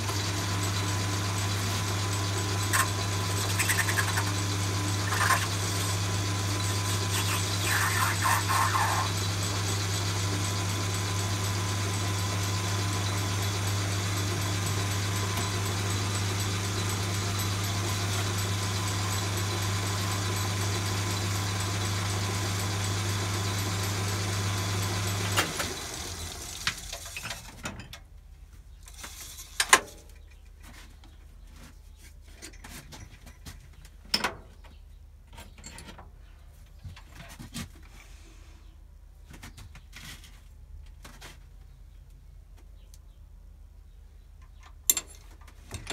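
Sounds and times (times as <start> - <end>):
milling machine motor humming: 0.0 - 26.9
tools clicking and knocking: 44.4 - 45.9.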